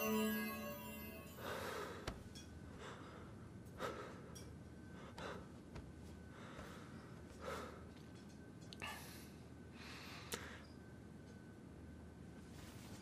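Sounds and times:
sustained music tones: 0:00.0 - 0:01.8
person breathing heavily: 0:06.3 - 0:08.0.

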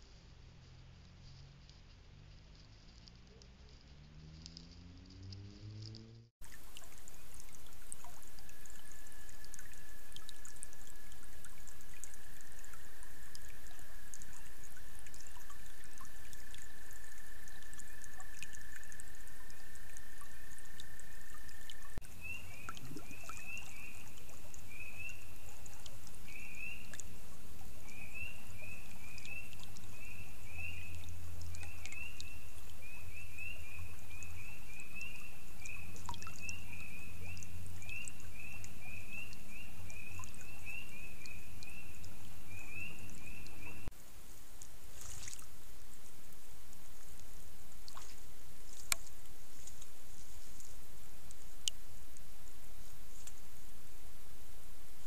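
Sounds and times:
steady hiss: 0:06.2 - 0:55.0
frogs peeping chorus: 0:06.5 - 0:43.9.

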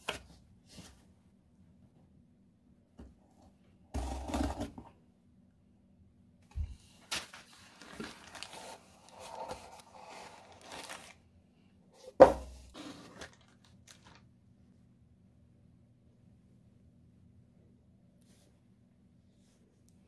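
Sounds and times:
cardboard and plastic rustling: 0:06.5 - 0:11.3, 0:12.0 - 0:14.3.

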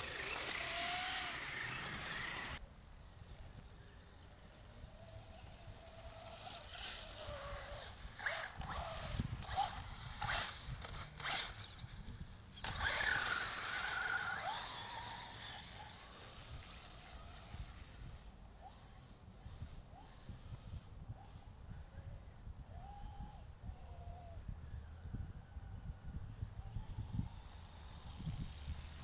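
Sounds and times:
toy truck motor whining: 0:00.0 - 0:02.6, 0:04.5 - 0:21.5, 0:22.7 - 0:24.4, 0:26.3 - 0:29.0.

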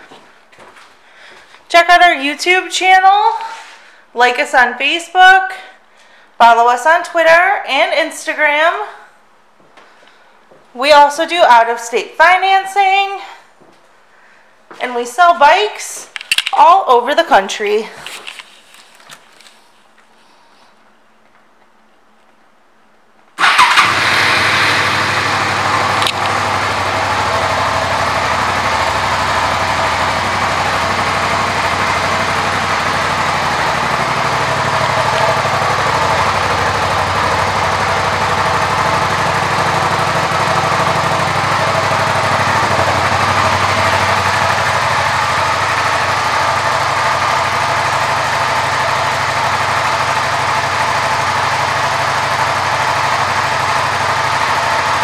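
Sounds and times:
motorcycle engine starting and idling: 0:23.4 - 0:55.0.

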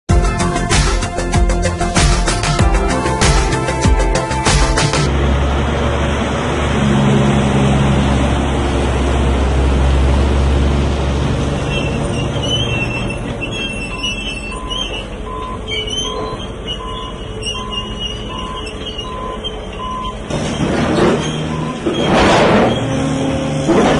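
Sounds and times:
mechanical yard noise: 0:03.6 - 0:23.9
truck engine driving past: 0:03.7 - 0:23.9
high squeaks: 0:11.4 - 0:23.9
backup alarm beeping: 0:13.9 - 0:20.3, 0:21.4 - 0:22.1.

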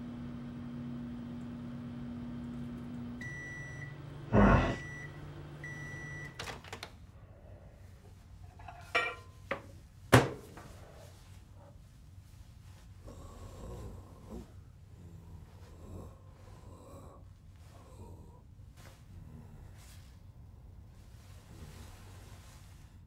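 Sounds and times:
microwave oven humming: 0:00.0 - 0:11.8
microwave beeps: 0:03.2 - 0:06.6.

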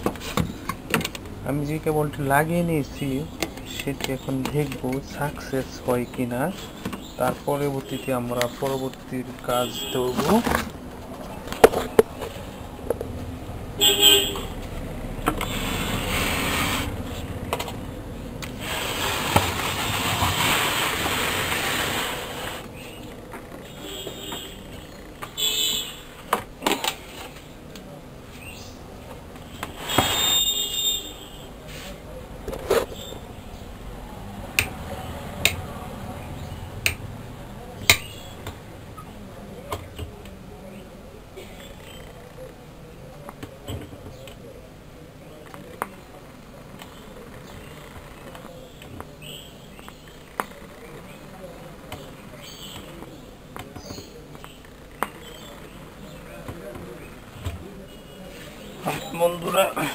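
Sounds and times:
vehicles passing: 0:00.0 - 0:25.4, 0:31.6 - 0:40.3
car horn toot: 0:09.6 - 0:10.3, 0:13.8 - 0:14.5.

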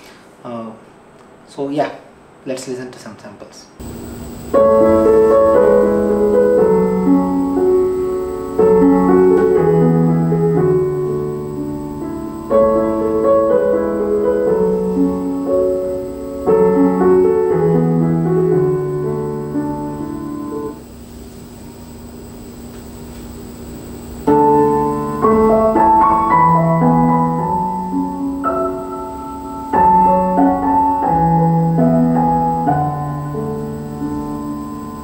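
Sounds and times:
piano music through speakers: 0:04.4 - 0:20.8, 0:24.2 - 0:35.0.

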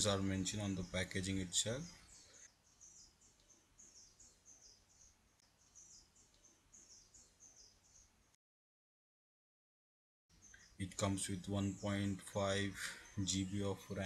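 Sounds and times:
small bird chirping: 0:00.0 - 0:08.4, 0:10.3 - 0:14.0.

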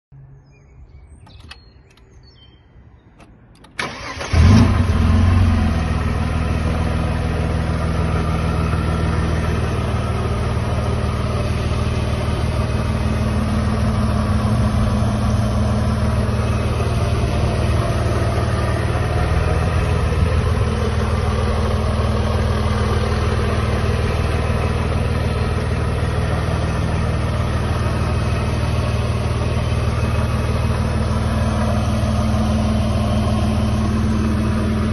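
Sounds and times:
car engine idling: 0:03.2 - 0:34.9
starter motor cranking: 0:03.6 - 0:05.0.

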